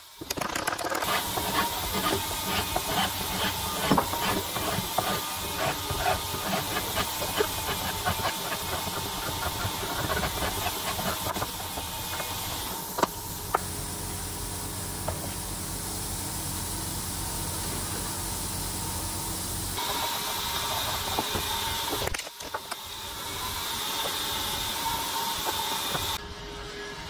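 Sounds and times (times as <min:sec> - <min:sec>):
file rasping on metal: 0:01.0 - 0:12.7
steady hiss: 0:01.1 - 0:22.0.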